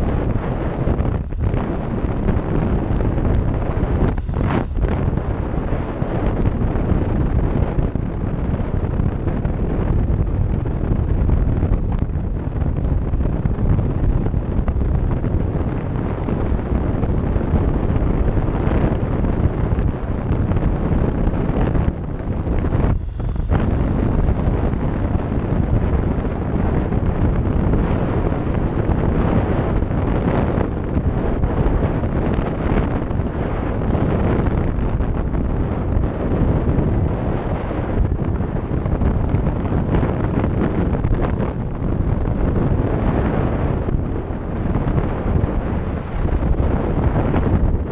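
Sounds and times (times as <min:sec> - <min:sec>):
wind rushing over microphone: 0:00.0 - 0:47.9
motorcycle engine: 0:20.7 - 0:28.8.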